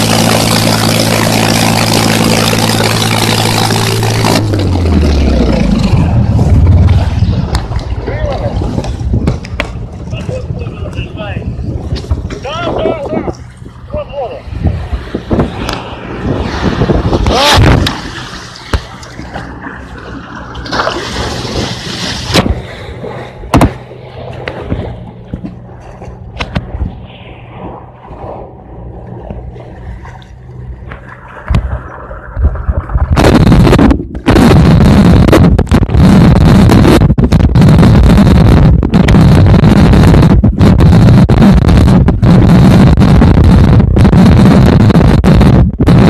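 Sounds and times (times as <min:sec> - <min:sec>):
loud distorted rushing noise: 0:00.0 - 0:11.7, 0:14.4 - 0:19.0, 0:26.3 - 0:30.0, 0:30.7 - 0:46.0
vehicle engine humming: 0:00.0 - 0:12.7, 0:13.3 - 0:46.0
water sloshing and gurgling: 0:00.0 - 0:45.2
sharp knocks: 0:23.5 - 0:23.8.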